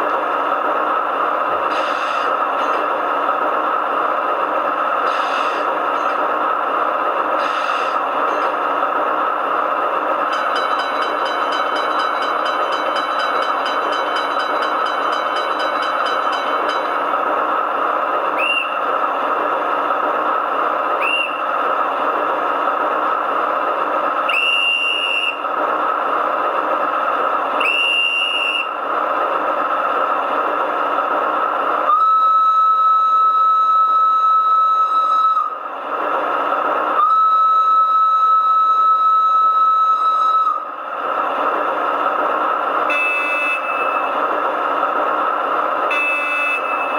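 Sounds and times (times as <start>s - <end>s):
locomotive whistle tone: 18.3s - 18.9s, 21.0s - 21.5s, 24.3s - 25.4s, 27.6s - 28.8s, 31.9s - 35.6s, 37.0s - 40.7s, 42.9s - 44.2s, 45.9s - 46.9s
conductor's whistle blasts: 18.4s - 18.8s, 21.0s - 21.4s, 24.3s - 25.4s, 27.6s - 28.7s, 37.0s - 40.6s, 42.9s - 44.0s, 45.9s - 46.9s.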